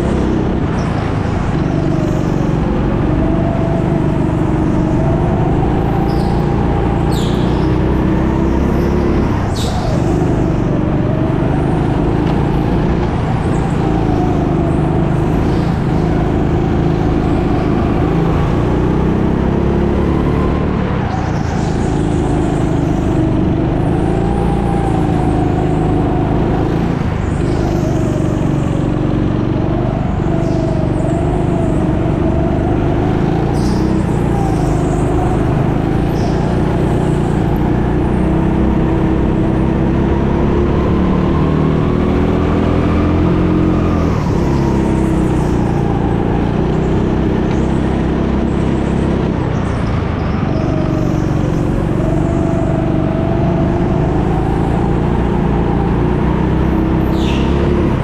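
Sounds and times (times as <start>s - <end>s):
go-kart engine: 0.0s - 58.0s.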